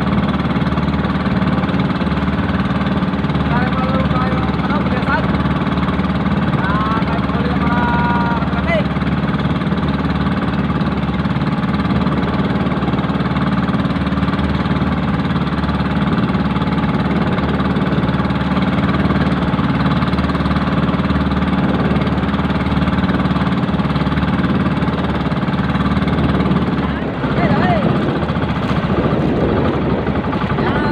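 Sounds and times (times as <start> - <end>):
boat motor droning: 0.0 - 30.9.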